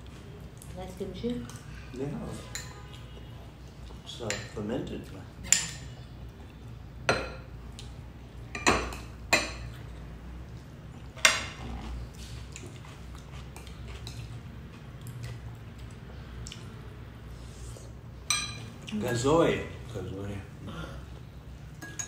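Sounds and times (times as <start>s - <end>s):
spoons clinking on ceramic: 18.3s - 18.7s, 21.8s - 22.0s.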